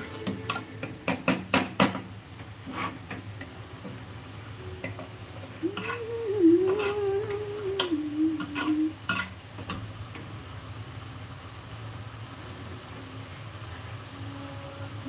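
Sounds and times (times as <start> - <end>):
ladle scraping pot: 2.6 - 3.4, 5.6 - 9.4.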